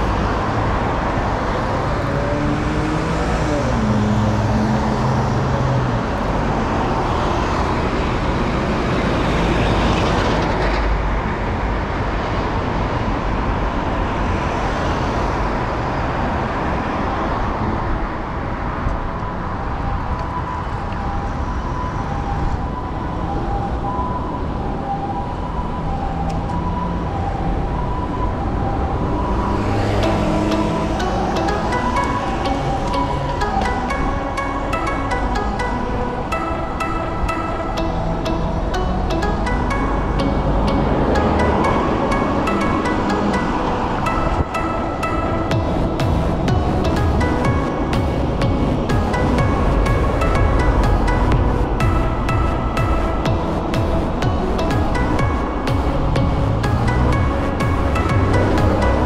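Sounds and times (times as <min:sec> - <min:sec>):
cars and trucks passing: 0:00.0 - 0:59.0.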